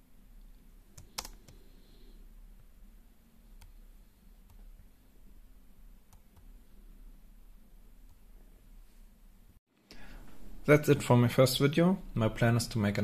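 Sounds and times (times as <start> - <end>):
faint low hum: 0.0 - 13.0
keyboard keystroke clicks: 1.0 - 1.5.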